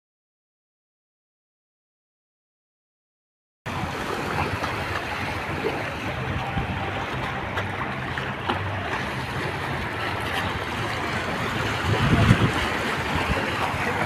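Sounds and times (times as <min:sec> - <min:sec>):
river water lapping: 0:03.7 - 0:14.0.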